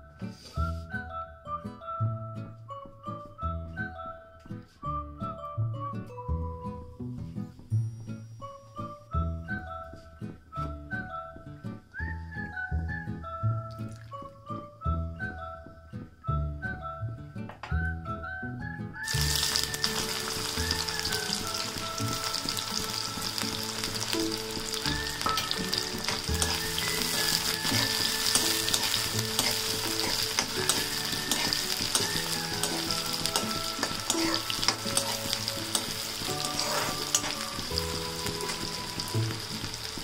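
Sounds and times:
onions sizzling in hot oil: 19.0 - 40.0
metal spoon scraping pan: 25.2 - 37.6.

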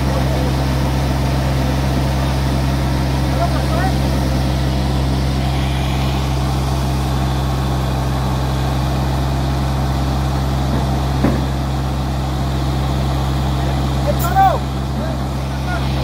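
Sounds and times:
excavator diesel engine running: 0.0 - 16.0
short knock: 10.7 - 11.5.

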